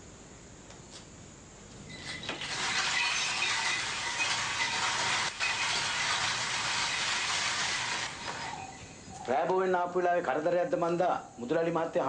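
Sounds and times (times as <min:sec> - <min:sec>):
steady dense hiss: 0:00.0 - 0:12.0.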